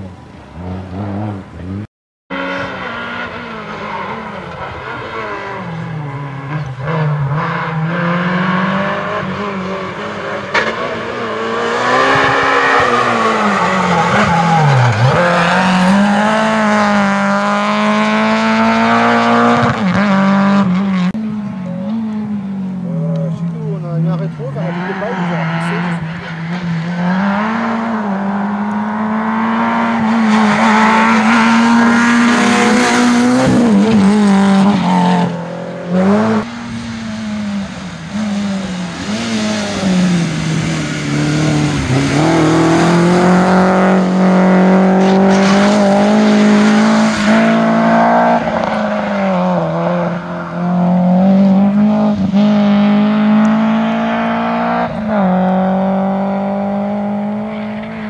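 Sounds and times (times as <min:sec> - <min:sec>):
rally car engines revving: 0:00.0 - 0:58.0.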